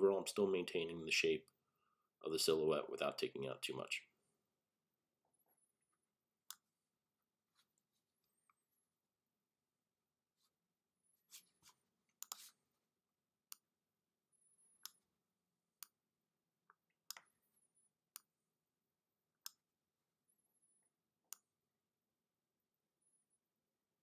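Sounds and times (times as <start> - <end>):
soft brushing noises: 11.2 - 11.8
computer mouse clicks: 12.2 - 12.5.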